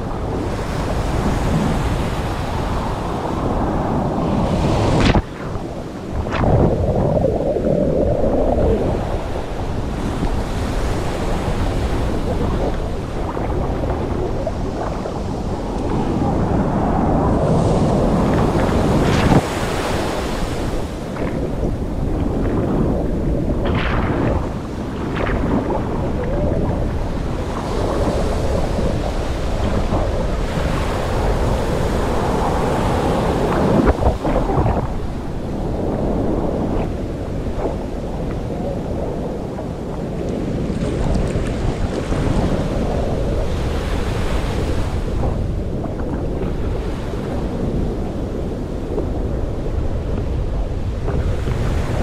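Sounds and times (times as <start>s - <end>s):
small waves washing: 0.0s - 48.0s
wind on microphone: 0.0s - 52.0s
muffled underwater water churning: 2.4s - 19.4s, 20.5s - 43.8s.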